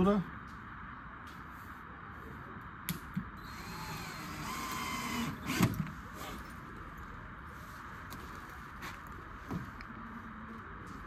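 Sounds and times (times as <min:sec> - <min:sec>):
drill motor whining: 0:03.4 - 0:05.8.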